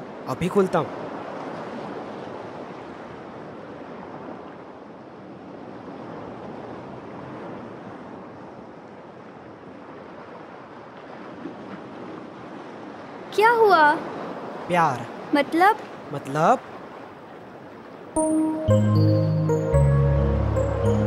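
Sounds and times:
ocean surf breaking: 12.0 - 21.0.

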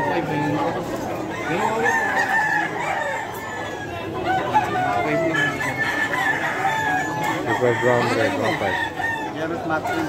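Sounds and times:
chickens clucking: 0.0 - 10.0
roosters crowing: 0.0 - 10.0.

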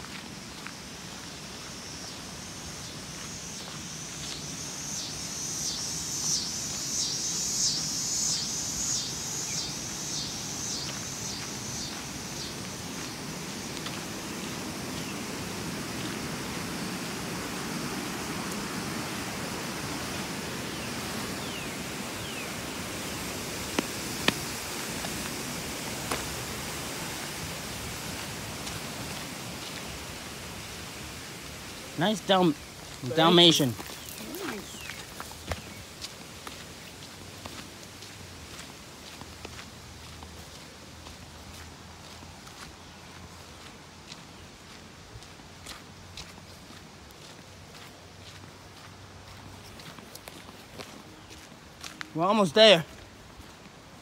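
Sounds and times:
steady hiss: 0.0 - 40.9
footsteps on outdoor path: 0.0 - 54.0.

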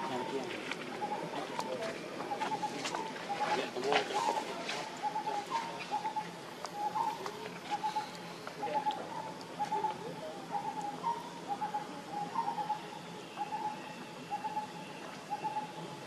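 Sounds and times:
bird calling: 0.0 - 16.0.

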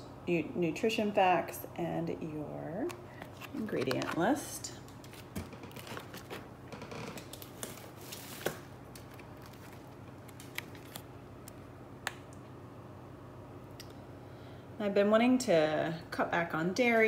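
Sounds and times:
plastic packaging rustling: 2.9 - 11.6.

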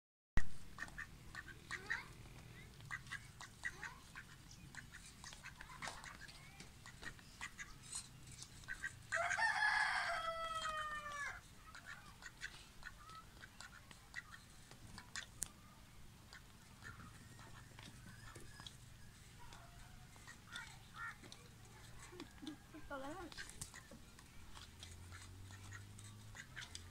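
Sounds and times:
rooster crowing: 9.1 - 11.4.

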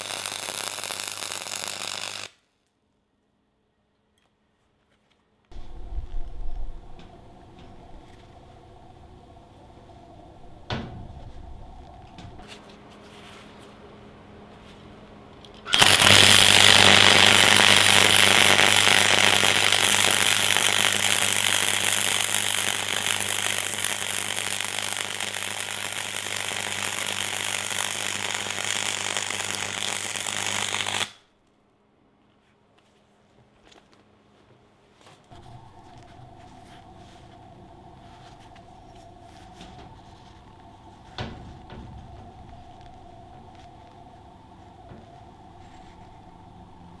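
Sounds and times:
welding arc crackling: 0.0 - 2.4, 15.6 - 31.2
low hum: 5.5 - 30.3, 35.3 - 47.0.

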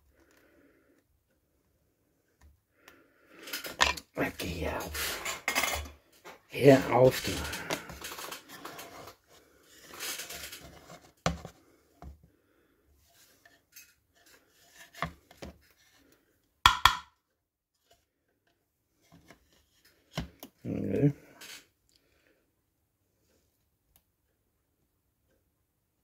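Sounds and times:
board knocking and clacking: 16.7 - 17.1.

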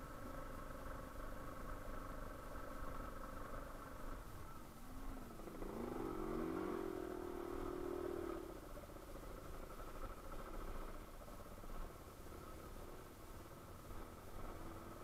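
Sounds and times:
motorcycle engine revving: 4.8 - 11.0.

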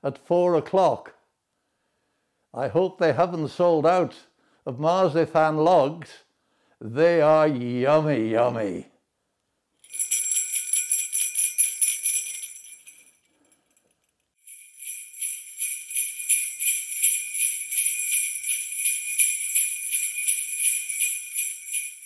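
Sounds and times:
jingle bells shaken: 9.8 - 22.0.

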